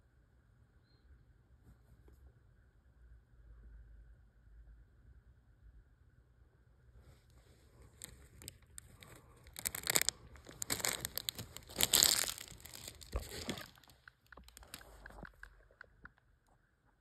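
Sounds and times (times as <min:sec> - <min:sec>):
plastic wrapping crinkling: 0:07.7 - 0:16.2.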